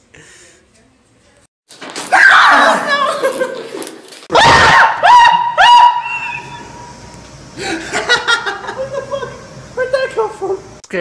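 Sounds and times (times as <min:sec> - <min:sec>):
person screaming in fright: 0:02.1 - 0:03.4, 0:04.3 - 0:06.4.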